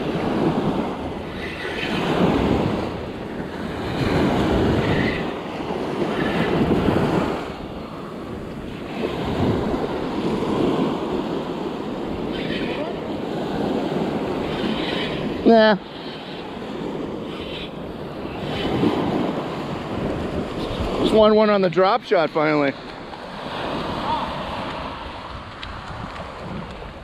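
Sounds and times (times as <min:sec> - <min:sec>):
ocean surf washing: 0:00.0 - 0:27.0
wind rumbling on microphone: 0:00.0 - 0:27.0.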